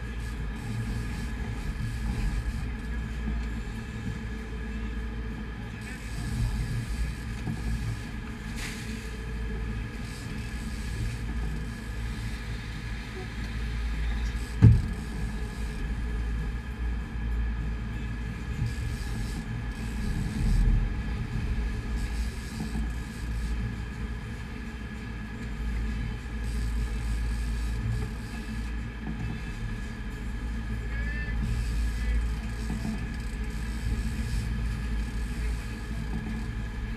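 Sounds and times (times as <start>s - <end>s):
boat engine rumble: 0.0s - 36.9s.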